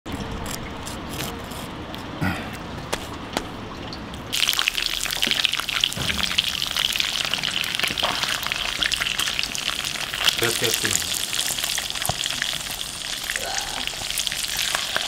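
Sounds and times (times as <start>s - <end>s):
eel sizzling in hot oil: 4.3s - 15.0s
sharp knocks: 5.9s - 6.7s.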